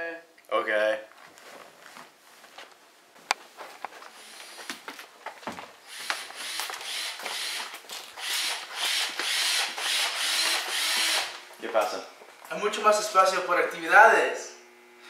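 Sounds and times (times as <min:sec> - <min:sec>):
footsteps: 0:01.1 - 0:08.3, 0:10.9 - 0:12.6.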